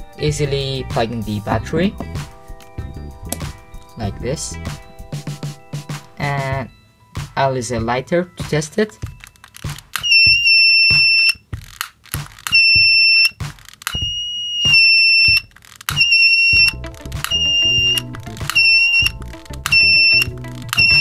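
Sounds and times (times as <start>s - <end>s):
background music: 0.0s - 21.0s
high-pitched buzzer beeping: 10.0s - 11.4s, 12.5s - 21.0s.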